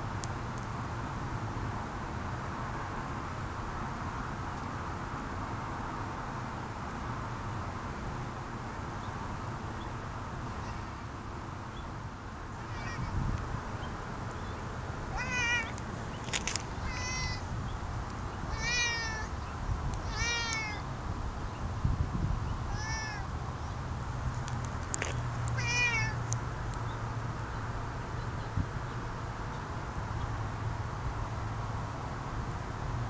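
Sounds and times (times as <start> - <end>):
cat meowing: 12.6 - 13.2, 15.1 - 15.7, 16.8 - 17.4, 18.5 - 19.3, 20.0 - 20.8, 22.7 - 23.3, 25.6 - 26.2.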